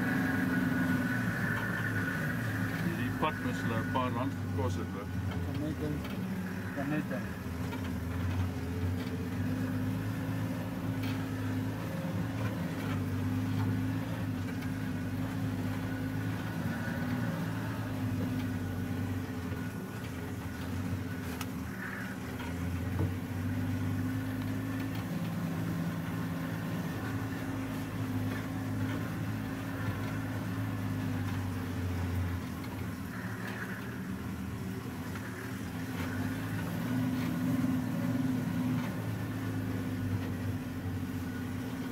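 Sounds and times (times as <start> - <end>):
vehicle engine running: 0.0 - 41.9.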